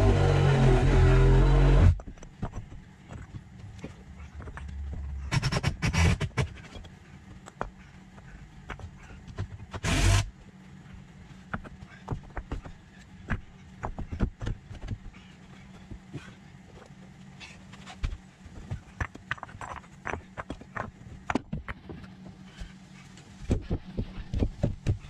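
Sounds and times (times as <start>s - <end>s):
brick scraping on brick: 17.7s - 22.0s
bricks knocking together: 18.0s - 22.1s.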